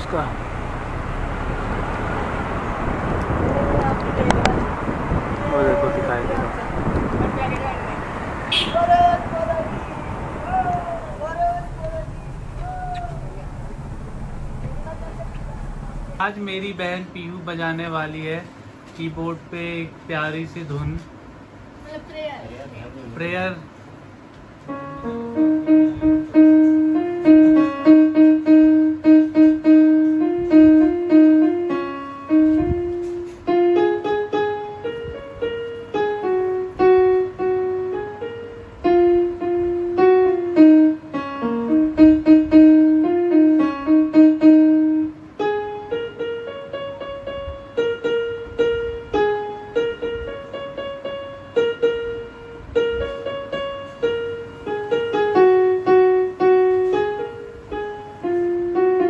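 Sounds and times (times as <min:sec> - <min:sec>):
electronic keyboard melody: 0:24.6 - 0:59.0.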